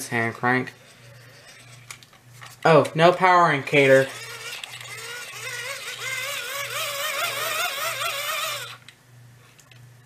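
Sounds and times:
hand-crank dynamo whine: 0.7 - 2.1, 3.8 - 8.9.

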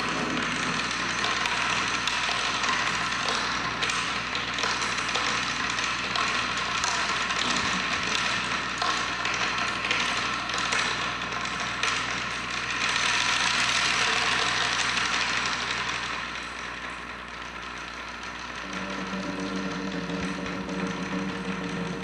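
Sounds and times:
drums playing fast rolls: 18.6 - 22.0.

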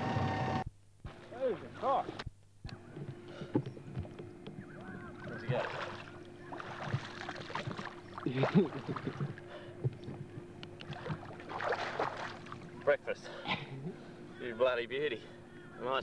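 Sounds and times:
legs wading through water: 2.8 - 12.9.

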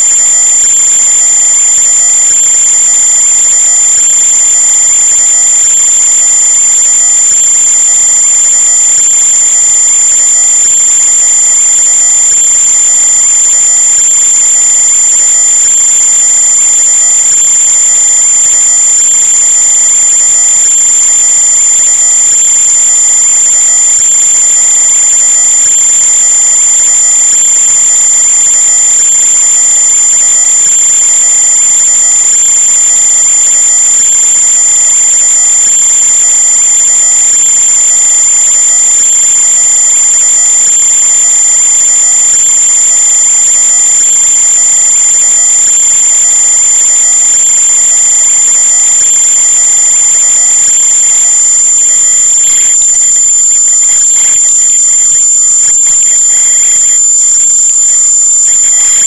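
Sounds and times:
high-pitched whine: 43.1 - 59.0.

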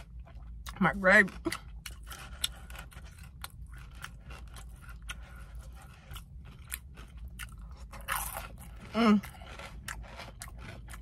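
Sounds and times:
chewing crunchy fried chicken: 0.0 - 11.0.

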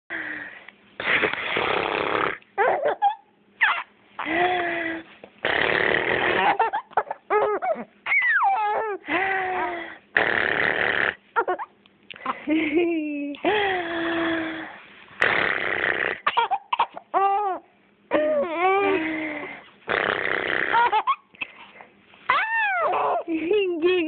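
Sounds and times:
baby giggling and squealing: 2.6 - 5.0, 5.6 - 9.8, 11.4 - 12.4, 16.2 - 19.6, 20.6 - 23.5.

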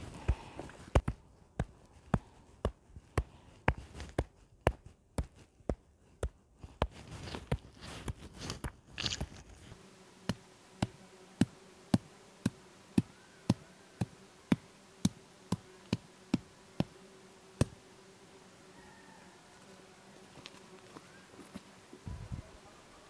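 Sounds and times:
insect buzzing: 9.7 - 23.0
stone tapping on earth: 17.6 - 17.8.

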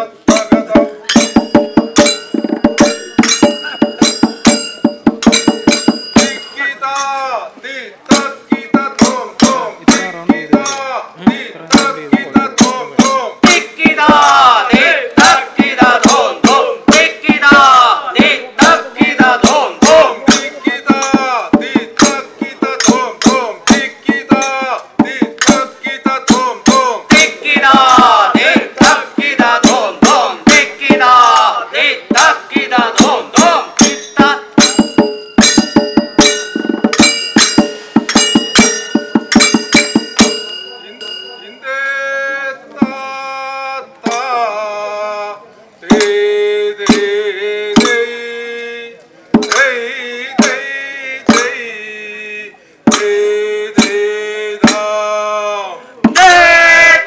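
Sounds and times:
men chanting and calling out: 0.0 - 35.0, 38.2 - 57.0
fast steady drumming: 0.1 - 6.6, 8.1 - 40.6, 46.8 - 48.1, 49.3 - 51.6, 52.9 - 55.0
high held tone: 0.3 - 7.4, 32.7 - 43.0.

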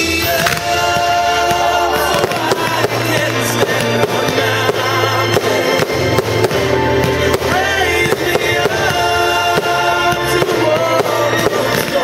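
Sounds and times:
fireworks banging and crackling: 0.0 - 12.0
music with long held tones: 0.0 - 12.0.

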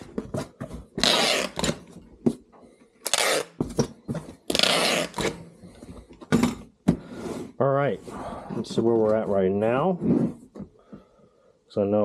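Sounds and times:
tape gun ripping packing tape: 1.0 - 1.8, 3.0 - 3.6, 4.5 - 5.4.

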